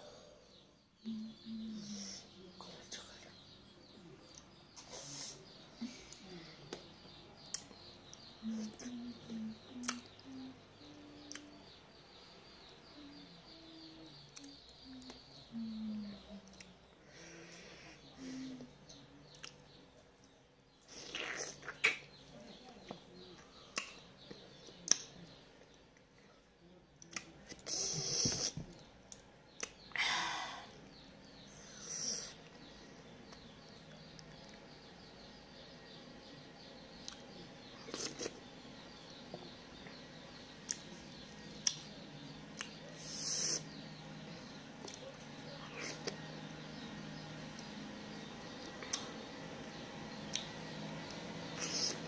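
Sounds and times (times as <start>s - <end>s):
small birds chirping: 0.0s - 52.0s
person humming low: 8.4s - 11.6s, 12.8s - 16.5s
lip smacks: 29.6s - 29.8s, 41.6s - 41.9s, 48.8s - 49.1s.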